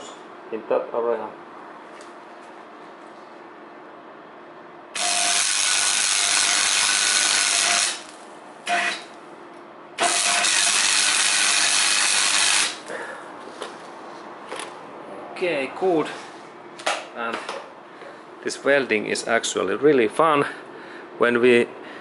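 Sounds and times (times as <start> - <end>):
welder arc crackling: 5.0 - 9.2, 10.0 - 12.9.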